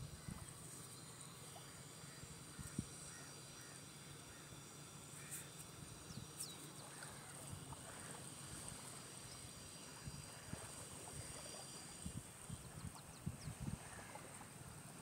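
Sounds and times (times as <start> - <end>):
wind on microphone: 0.0 - 0.5, 9.9 - 14.4
calm sea water rumble: 0.0 - 15.0.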